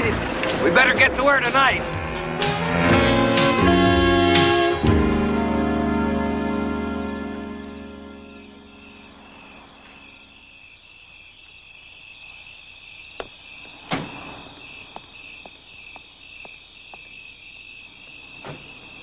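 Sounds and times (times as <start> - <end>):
crickets chirping: 0.0 - 19.0
footsteps on pavement: 14.7 - 17.3.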